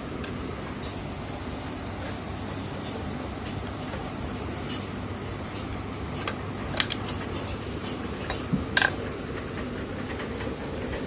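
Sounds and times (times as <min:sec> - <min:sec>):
metal parts clinking: 0:08.2 - 0:09.1.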